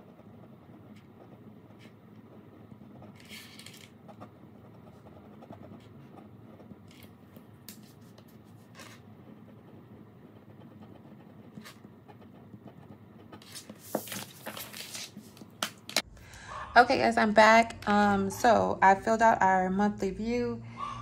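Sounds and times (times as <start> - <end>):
pen scratching on paper: 0.0 - 15.5
low steady hum: 0.0 - 20.6.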